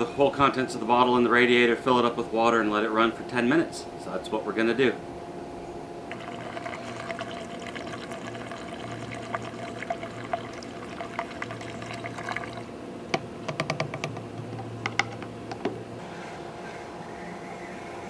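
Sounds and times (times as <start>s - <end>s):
liquid pouring through a funnel: 6.1s - 12.7s.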